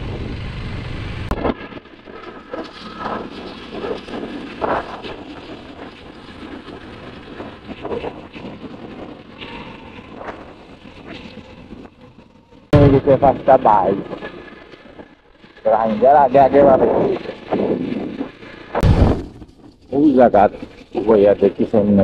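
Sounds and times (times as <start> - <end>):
motorcycle engine running: 0.0 - 22.0
road noise: 0.0 - 22.0.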